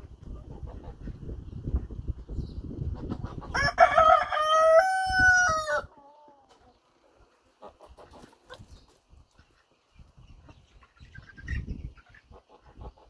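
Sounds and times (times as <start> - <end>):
rooster crowing: 3.5 - 5.9.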